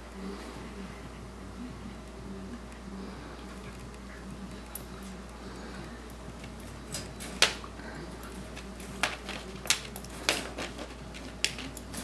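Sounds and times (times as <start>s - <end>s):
wire crate clicking and rattling: 6.4s - 12.0s.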